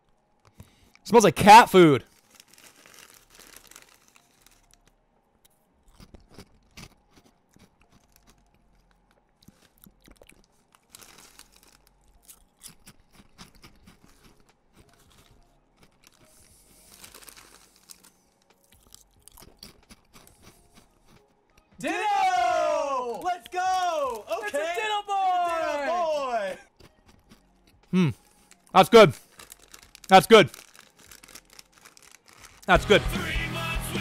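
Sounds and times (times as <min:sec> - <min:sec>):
crisp packet crinkling: 0:02.1 - 0:04.9, 0:09.5 - 0:12.3, 0:15.0 - 0:19.2, 0:28.5 - 0:32.8
crisps being chewed: 0:02.1 - 0:21.7, 0:26.6 - 0:32.8.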